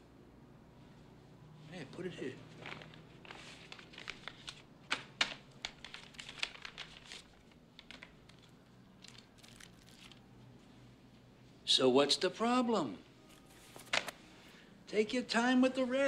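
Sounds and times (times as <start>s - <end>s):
paper envelope rustling: 2.5s - 10.3s, 13.3s - 14.2s.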